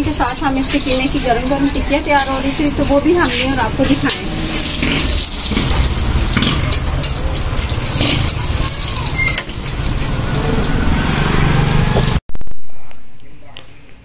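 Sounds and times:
food sizzling on a griddle: 0.0s - 10.2s
metal spatula scraping griddle: 0.1s - 10.9s.

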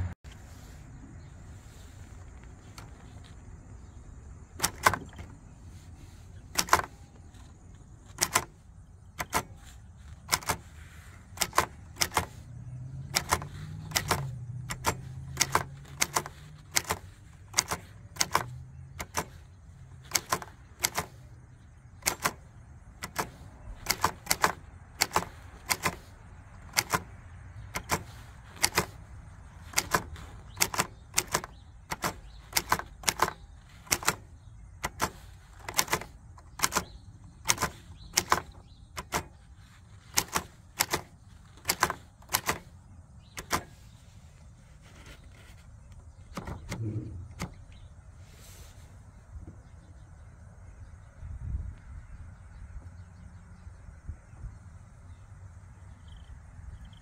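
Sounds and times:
typewriter keys striking: 4.6s - 5.3s, 6.5s - 7.0s, 8.0s - 8.6s, 9.2s - 10.7s, 11.4s - 21.3s, 21.9s - 43.8s.

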